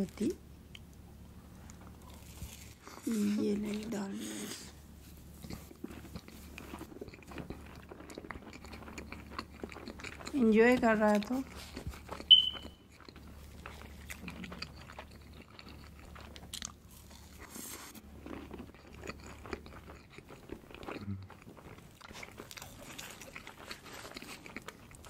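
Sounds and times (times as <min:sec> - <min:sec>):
person chewing wet mouth sounds: 0:05.4 - 0:10.4, 0:11.0 - 0:25.0
sharp tap with high ring: 0:12.3 - 0:12.7.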